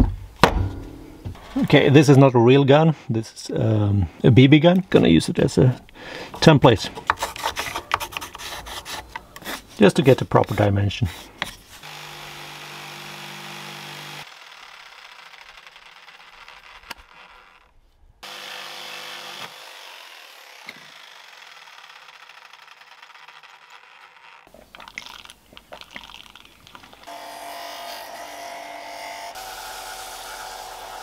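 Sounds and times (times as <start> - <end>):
belt sander motor hum: 11.8 - 24.5.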